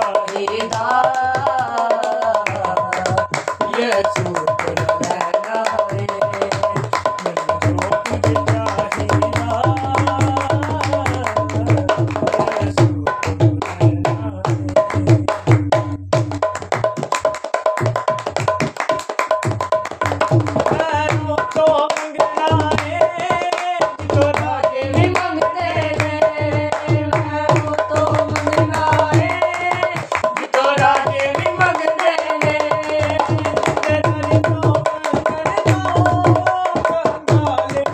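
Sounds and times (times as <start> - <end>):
men singing worship song: 0.0 - 15.4, 20.7 - 37.9
hand drum rhythm: 0.0 - 37.9
hand claps: 16.5 - 37.9.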